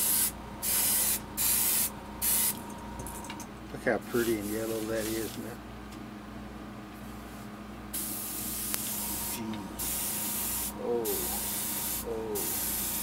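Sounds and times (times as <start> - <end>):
airbrush spraying hiss: 0.0 - 2.6, 4.1 - 5.4, 8.0 - 13.0.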